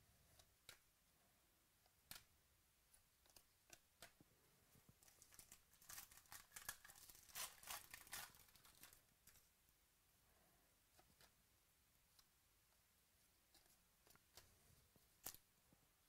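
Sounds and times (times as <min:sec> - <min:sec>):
cards being handled: 0:05.0 - 0:09.4
wrapper crinkling and tearing: 0:05.0 - 0:09.4.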